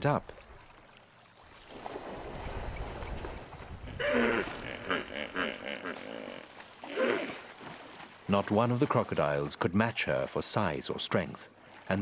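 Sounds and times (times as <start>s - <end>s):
hippopotamus grunting: 3.9s - 7.4s.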